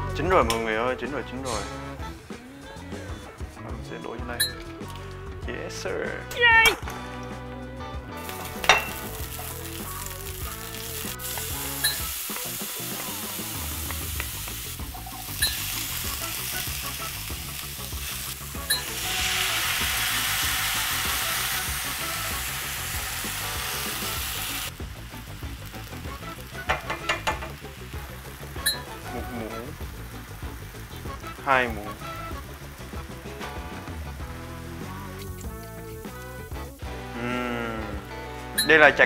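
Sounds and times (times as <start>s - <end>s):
broth ladled into hot pan: 8.2s - 10.4s, 17.8s - 24.7s
onions and garlic sizzling in oil: 8.2s - 38.8s
utensils knocking on pan: 8.5s - 9.1s, 26.6s - 27.7s.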